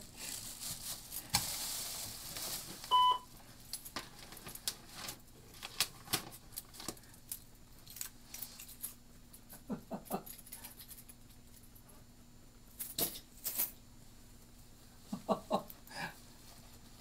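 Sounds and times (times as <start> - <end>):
fabric and plastic bag rustling: 0.0 - 3.0
faint steady hum: 0.0 - 17.0.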